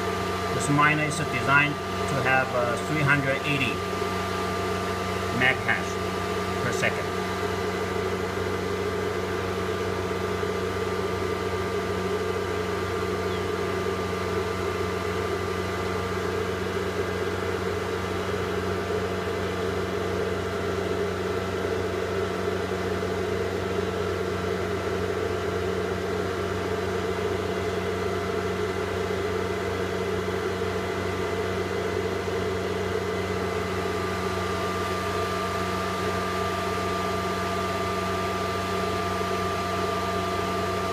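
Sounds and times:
cooling fan whirring with hum: 0.0s - 40.9s.

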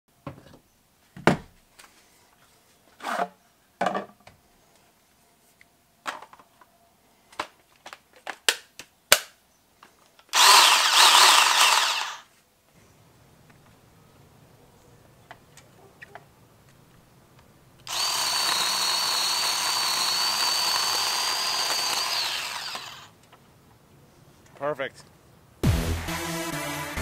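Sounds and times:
electric chainsaw whine: 10.3s - 12.3s, 17.9s - 23.1s.

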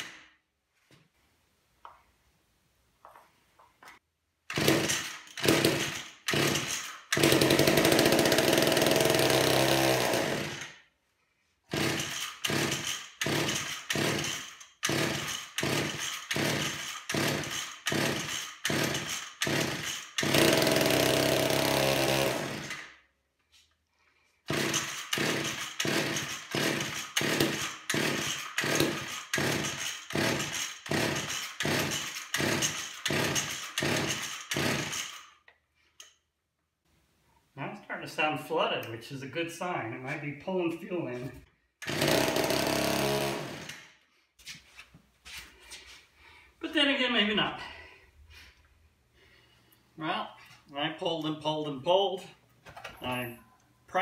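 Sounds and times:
chainsaw pull cord cranking: 4.5s - 10.8s, 11.7s - 23.0s, 24.4s - 36.2s, 41.8s - 44.0s
chainsaw engine running: 4.6s - 10.6s, 11.7s - 22.8s, 24.5s - 35.0s, 41.8s - 43.8s.

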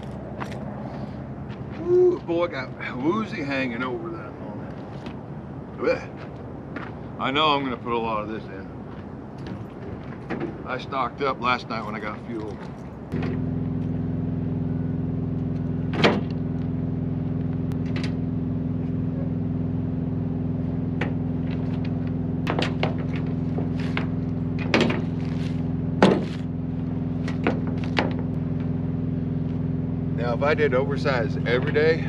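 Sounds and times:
diesel truck engine idling: 13.1s - 32.0s.

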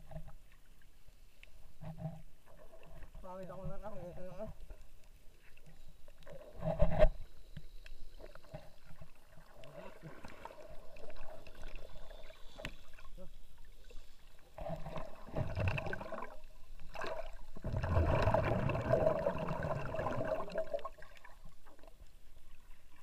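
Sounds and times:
underwater sloshing and gurgling: 0.0s - 23.0s
rushing water bursts: 15.1s - 21.4s.

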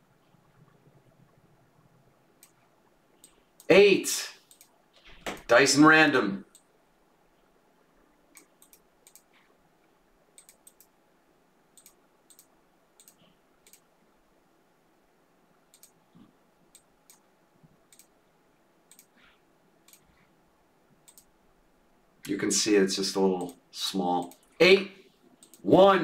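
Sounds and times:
computer mouse and keyboard clicking: 4.4s - 5.5s, 8.4s - 9.5s, 10.4s - 10.9s, 11.8s - 13.9s, 15.7s - 17.2s, 17.9s - 18.1s, 18.9s - 19.2s, 21.0s - 21.3s, 25.4s - 25.7s.

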